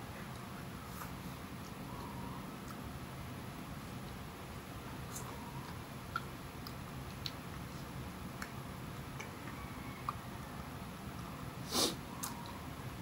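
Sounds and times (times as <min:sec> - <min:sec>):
low room noise: 0:00.0 - 0:13.0
mouth smacks and clicks: 0:05.1 - 0:07.4, 0:08.3 - 0:10.2.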